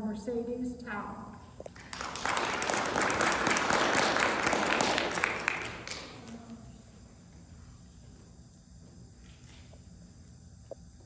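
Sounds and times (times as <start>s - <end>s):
audience applauding: 1.8s - 6.6s.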